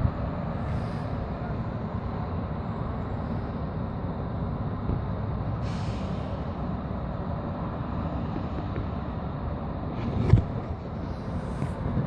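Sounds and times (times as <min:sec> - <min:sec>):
low city ambience rumble: 0:00.0 - 0:12.0
short hiss: 0:05.6 - 0:06.4.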